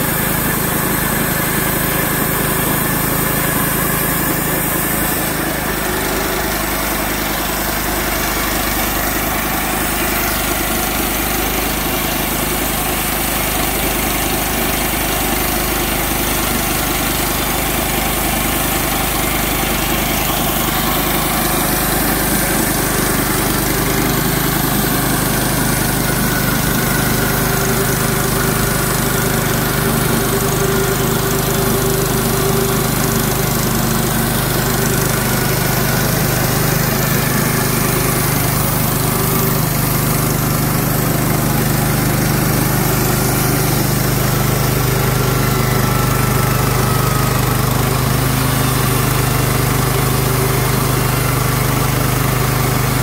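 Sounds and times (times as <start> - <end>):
small gasoline engine running: 0.0 - 53.0
band blade sawing through log: 18.2 - 50.8.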